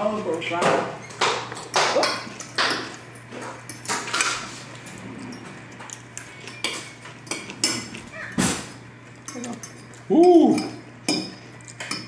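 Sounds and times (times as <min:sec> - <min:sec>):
forks clinking on plates: 0:05.3 - 0:08.0, 0:09.2 - 0:12.0.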